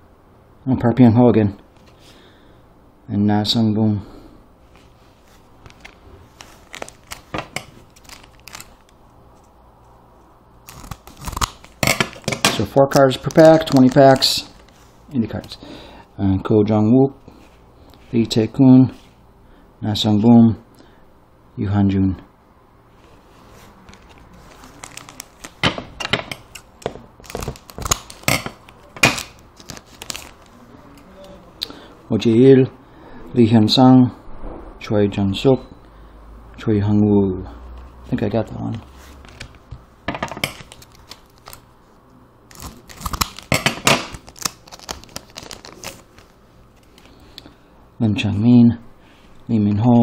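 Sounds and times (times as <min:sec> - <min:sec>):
foil wrapper crinkling: 0:05.6 - 0:09.0, 0:10.6 - 0:14.9, 0:23.9 - 0:30.6, 0:40.4 - 0:41.6, 0:42.5 - 0:47.4.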